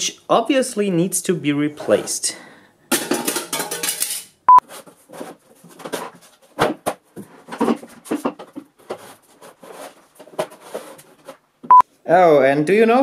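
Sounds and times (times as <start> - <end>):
wood knocks taps and scrapes: 5.1 - 11.4.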